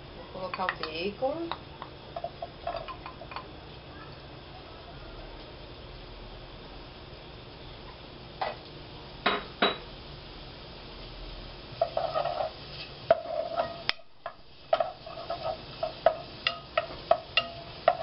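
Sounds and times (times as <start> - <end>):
wooden spoon scraping a metal pot: 11.8 - 13.9, 14.7 - 18.0.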